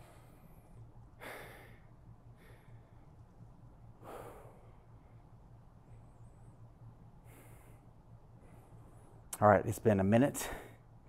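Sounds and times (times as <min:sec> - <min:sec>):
man breathing hard: 0:00.0 - 0:03.1, 0:04.0 - 0:05.3, 0:07.2 - 0:09.1.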